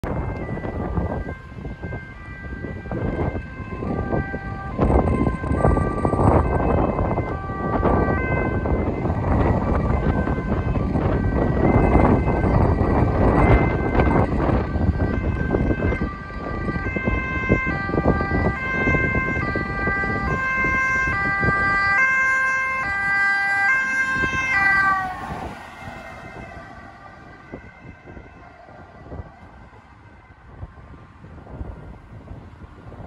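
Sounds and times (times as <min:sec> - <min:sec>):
ambulance two-tone siren: 0:00.0 - 0:33.0.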